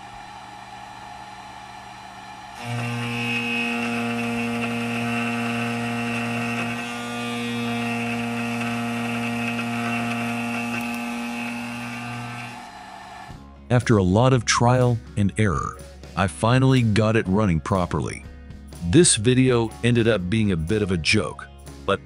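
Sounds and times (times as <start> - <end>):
milling spindle cutting metal: 0.0 - 13.4.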